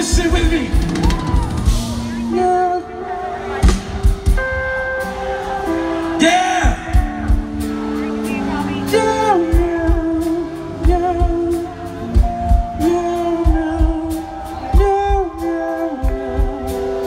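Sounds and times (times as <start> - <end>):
steady drum beat: 0.0 - 2.3, 3.6 - 17.0
person singing long notes: 4.3 - 17.0.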